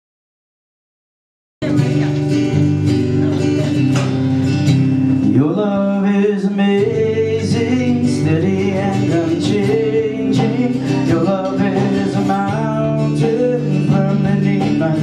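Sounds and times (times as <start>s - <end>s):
band playing guitars and keyboard: 1.6s - 15.0s
person singing: 5.2s - 15.0s.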